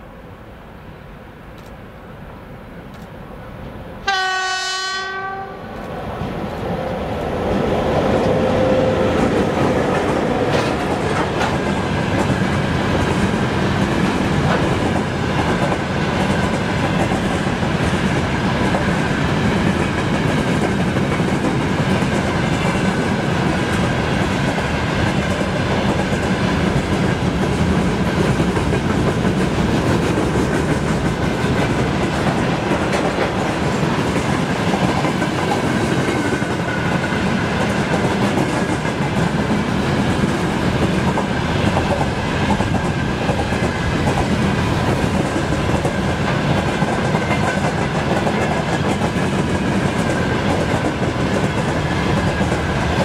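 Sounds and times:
freight train rumbling past: 0:02.0 - 0:53.0
locomotive horn blast: 0:04.0 - 0:05.7.

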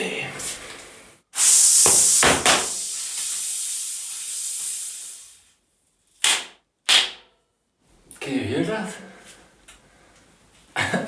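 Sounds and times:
gas hissing into tire: 0:01.3 - 0:05.6.

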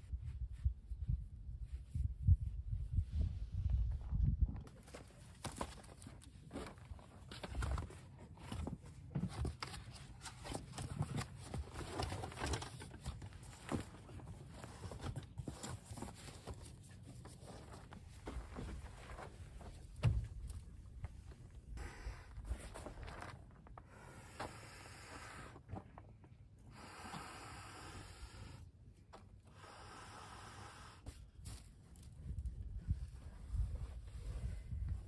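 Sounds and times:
thump: 0:20.0 - 0:20.4.

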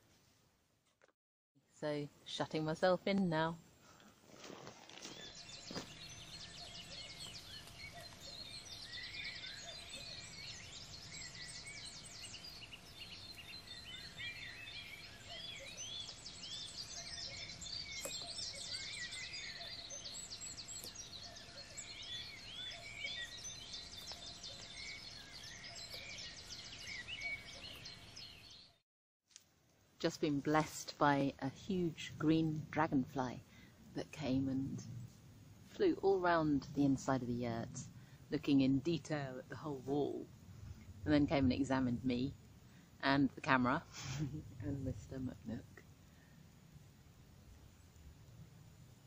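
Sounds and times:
faint low background noise: 0:00.0 - 0:28.6, 0:29.3 - 0:49.0
songbirds chirping and singing: 0:05.0 - 0:28.8.

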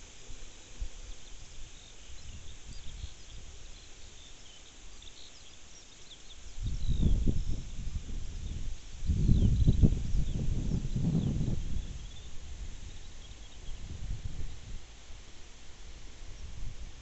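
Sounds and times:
small birds chirping: 0:00.0 - 0:16.7
wind buffeting the microphone: 0:00.8 - 0:03.8, 0:06.5 - 0:15.3, 0:15.9 - 0:17.0.

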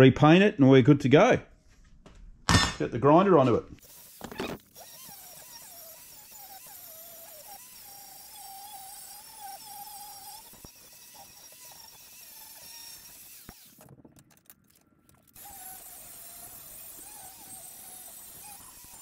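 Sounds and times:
angle grinder grinding metal: 0:03.8 - 0:13.8, 0:15.4 - 0:19.0.

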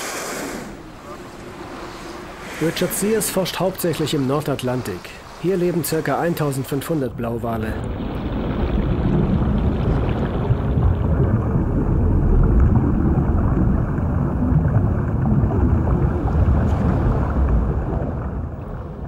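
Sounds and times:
low underwater rumble: 0:07.7 - 0:19.0.

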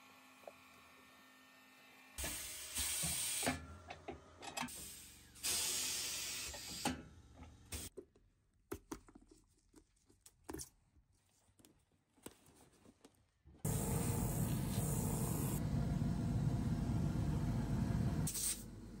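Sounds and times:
pneumatic press air hissing: 0:02.2 - 0:03.6, 0:04.7 - 0:07.0, 0:13.7 - 0:15.6, 0:18.3 - 0:18.7.

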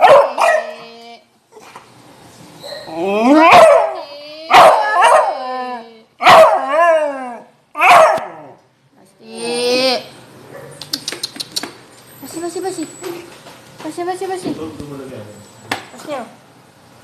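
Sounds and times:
hound barking and howling: 0:00.0 - 0:00.8, 0:02.7 - 0:08.6.

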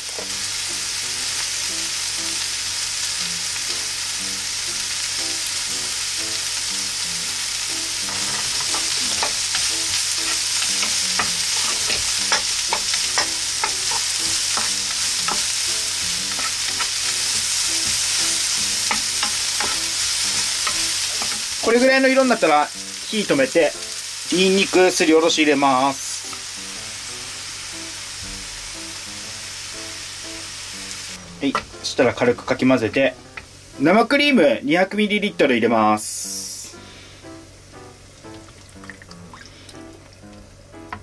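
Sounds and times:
onions and mushrooms sizzling in pan: 0:00.0 - 0:38.5, 0:39.1 - 0:41.0
wooden spatula scraping pan: 0:08.0 - 0:15.6.

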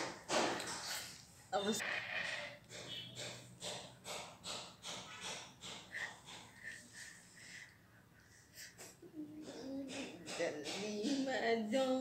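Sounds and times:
woman laughing breathily: 0:05.9 - 0:09.8.

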